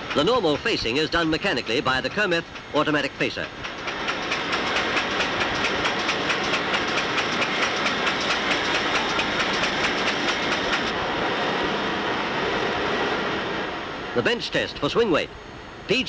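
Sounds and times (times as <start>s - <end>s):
machine clicking: 3.6s - 10.9s.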